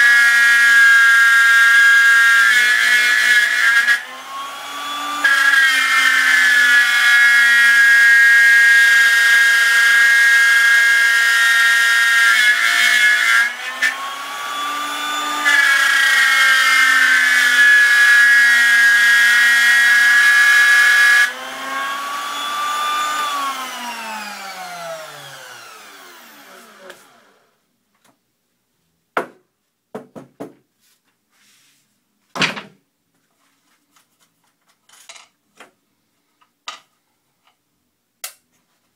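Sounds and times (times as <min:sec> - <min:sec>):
router whining while cutting: 0:00.0 - 0:27.6
router winding down: 0:03.9 - 0:07.2, 0:09.0 - 0:27.6.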